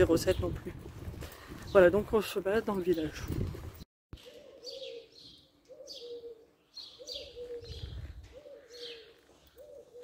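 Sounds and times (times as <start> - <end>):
dove cooing: 4.2 - 10.0.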